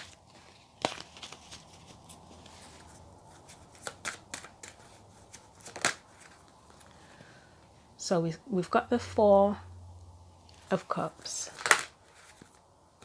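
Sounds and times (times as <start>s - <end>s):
cards being shuffled: 0.0s - 7.0s, 10.5s - 13.0s.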